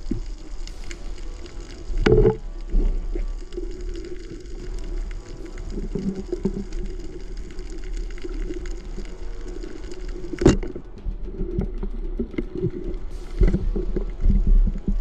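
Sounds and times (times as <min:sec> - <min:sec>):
small clicks and crackles: 0:00.0 - 0:15.0
steady low underwater hum: 0:00.0 - 0:15.0.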